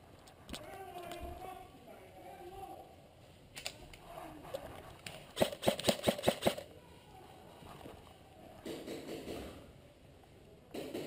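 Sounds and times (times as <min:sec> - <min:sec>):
airsoft gun shots: 0:05.4 - 0:06.6.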